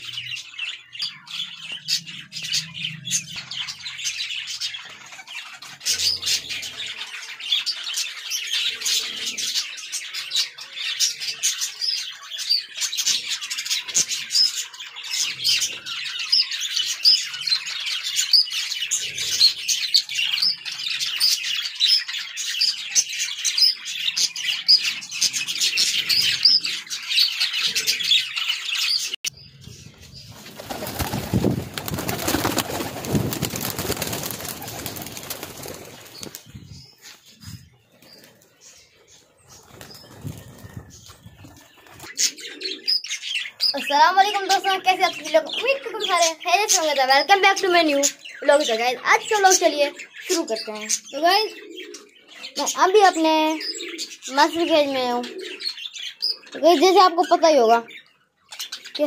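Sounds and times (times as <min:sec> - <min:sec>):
wings flapping: 0:30.3 - 0:36.6, 0:39.6 - 0:42.2
pigeon cooing: 0:40.3 - 0:43.0, 0:51.5 - 0:52.8, 0:54.9 - 0:55.8.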